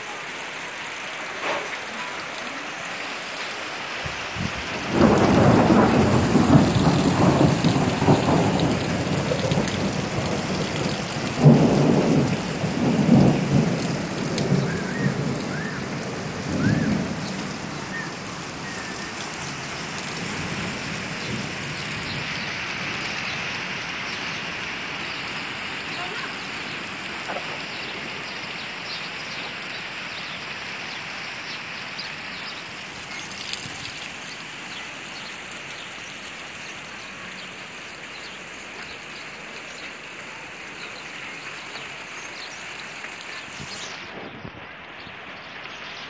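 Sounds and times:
steady rain: 0:00.0 - 0:46.0
thunder rumbling: 0:04.0 - 0:23.8, 0:24.9 - 0:29.6
sharp thunderclap: 0:04.1 - 0:17.4.

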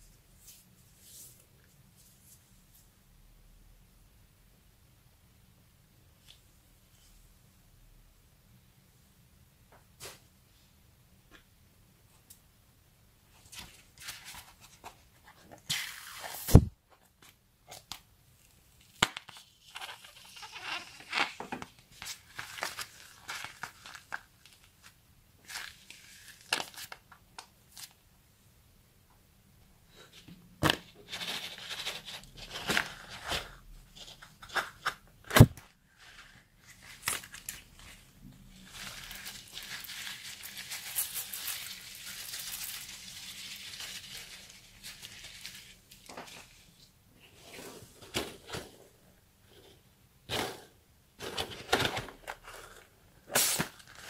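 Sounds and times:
rustling: 0:31.0 - 0:48.7.

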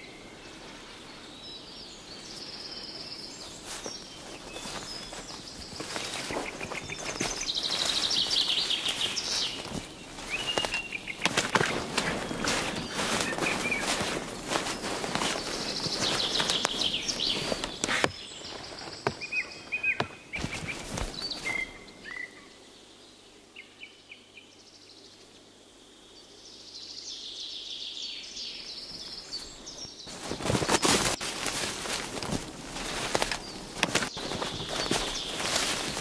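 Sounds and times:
small birds chirping: 0:00.0 - 0:36.0
rustling and shuffling: 0:02.1 - 0:21.8, 0:28.9 - 0:36.0.

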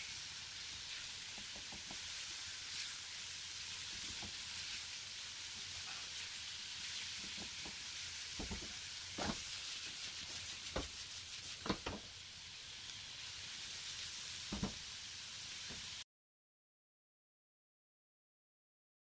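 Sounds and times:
chicken sizzling in oil: 0:00.0 - 0:16.0
spatula knocking on pan: 0:08.4 - 0:09.4, 0:11.6 - 0:12.0.

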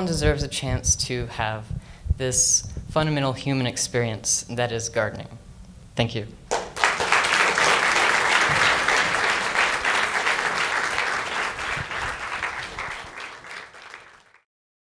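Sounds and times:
audience applauding: 0:06.5 - 0:14.4.

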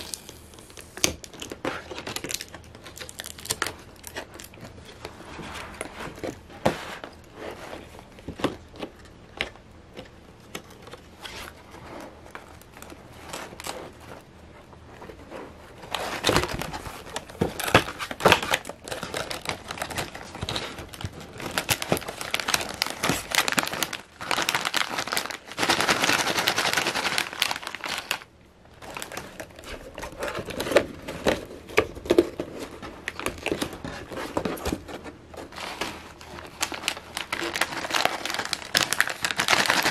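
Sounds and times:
chip bags crinkling: 0:00.0 - 0:06.4, 0:15.8 - 0:39.9.

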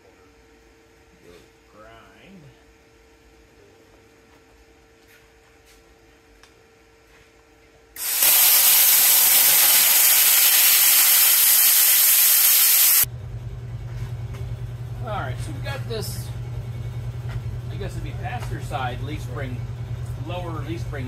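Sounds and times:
steady low hum: 0:00.0 - 0:21.0
plasma cutter hissing: 0:08.0 - 0:13.1.

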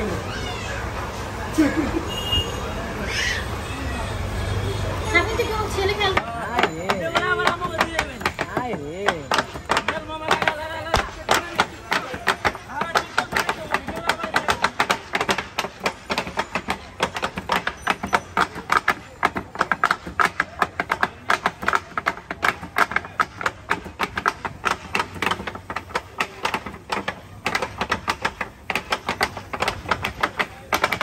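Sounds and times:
wooden rolling pins clacking on metal: 0:05.7 - 0:31.0.

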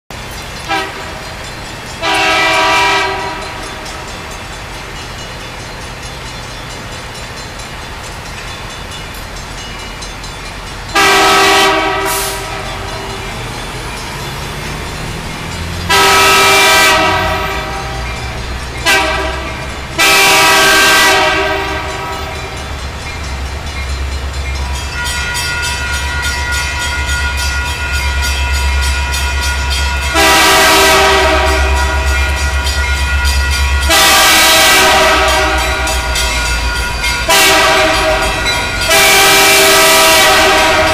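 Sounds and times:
train rumble: 0:00.1 - 0:40.9
locomotive air horn blasts: 0:00.7 - 0:01.4, 0:02.0 - 0:03.6, 0:10.9 - 0:13.3, 0:15.8 - 0:22.6, 0:25.0 - 0:40.9.

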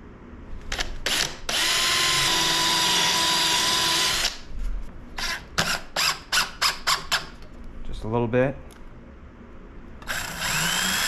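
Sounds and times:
power drill driving a screw: 0:00.7 - 0:04.4, 0:10.0 - 0:11.0.

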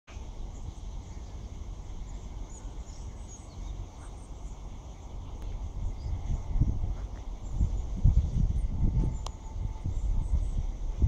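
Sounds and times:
bird chirps: 0:00.1 - 0:08.0
steady low rumble: 0:00.1 - 0:11.0.

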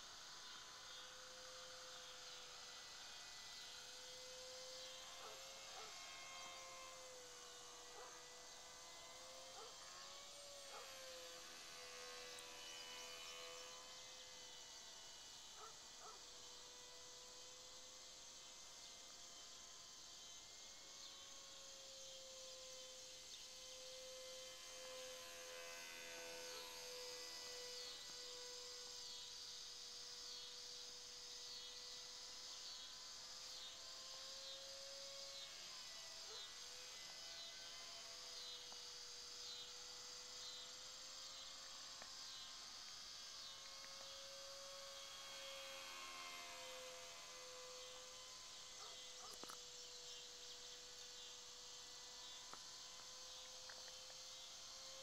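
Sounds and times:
model plane electric motor humming: 0:00.0 - 0:55.0
insects chirping: 0:15.2 - 0:55.0.

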